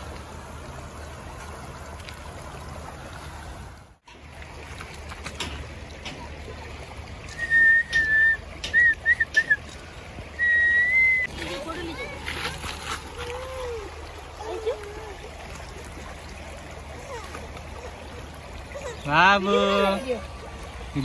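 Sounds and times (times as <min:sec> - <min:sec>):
river running over pebbles: 0:00.0 - 0:21.0
person whistling: 0:07.3 - 0:09.6, 0:10.4 - 0:11.3.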